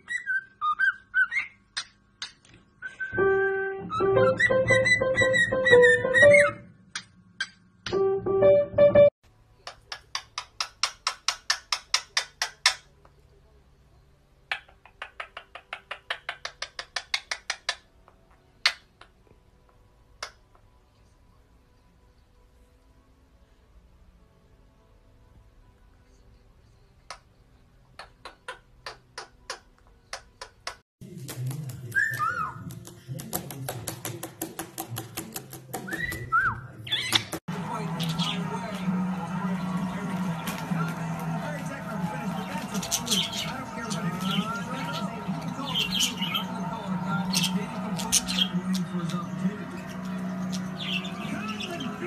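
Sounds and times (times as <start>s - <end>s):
parrot whistled chirp: 2.8s - 6.7s, 32.0s - 32.6s
piano-like melody notes: 3.1s - 6.8s, 7.9s - 9.2s
parrot clicking: 28.0s - 36.2s.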